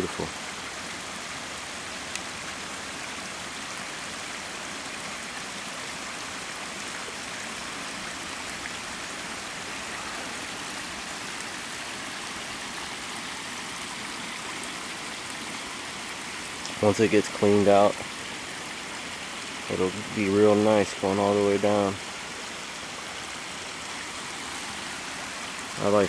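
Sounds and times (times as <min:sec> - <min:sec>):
stream rushing over rocks: 0:00.0 - 0:26.0.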